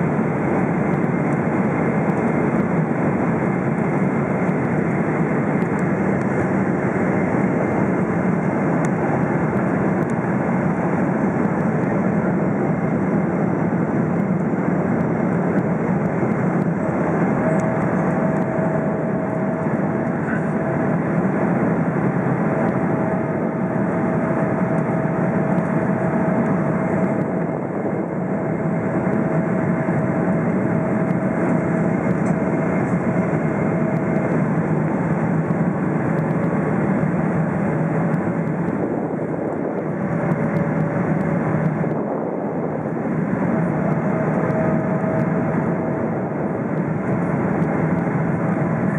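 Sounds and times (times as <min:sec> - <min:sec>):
aircraft engine noise: 0:00.0 - 0:48.9
airflow rushing in cabin: 0:00.0 - 0:48.9
faint steady whine: 0:00.0 - 0:48.9.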